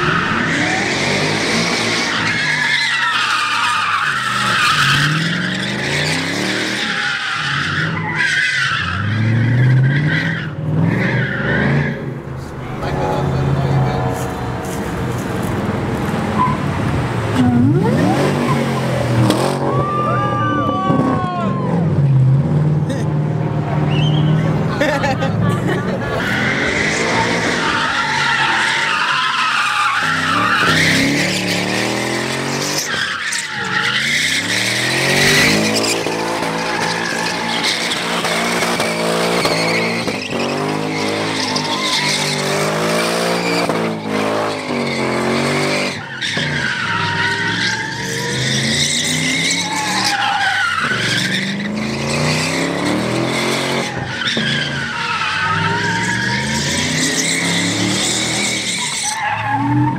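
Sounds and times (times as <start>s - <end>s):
tyres squealing on asphalt: 0.0s - 22.3s, 23.8s - 59.9s
car engine revving: 8.8s - 19.8s, 26.0s - 59.9s.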